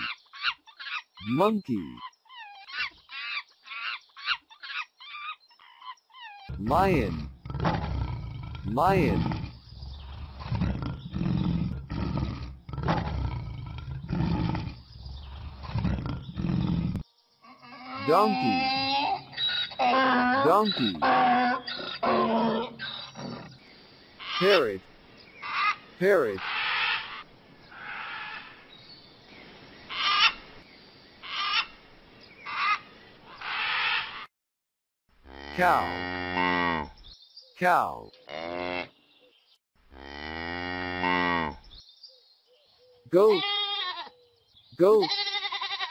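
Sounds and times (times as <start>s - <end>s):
macaw squawking: 0.0s - 1.2s, 2.0s - 6.6s, 24.2s - 24.7s, 25.4s - 25.8s, 29.9s - 30.4s, 31.2s - 31.7s, 32.5s - 32.8s
lion roaring: 6.5s - 17.0s, 19.8s - 23.6s.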